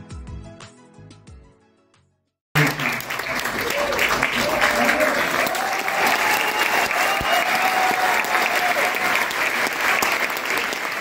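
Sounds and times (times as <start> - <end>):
audience applauding: 2.6 - 11.0.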